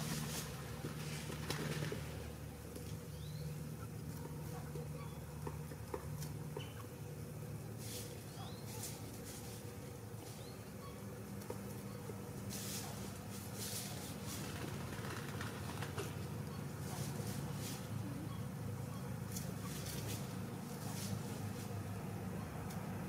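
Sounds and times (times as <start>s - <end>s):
rustles in dry leaves: 0.0s - 4.9s, 7.4s - 18.3s, 19.2s - 22.3s
low steady hum: 0.0s - 23.0s
faint bird chirps: 10.2s - 11.2s, 17.6s - 19.8s
swishing rustles: 12.5s - 14.5s.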